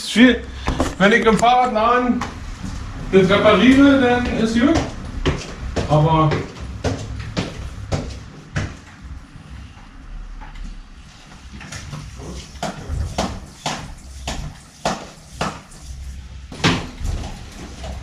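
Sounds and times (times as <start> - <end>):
footsteps on hard floor: 2.2 - 9.1.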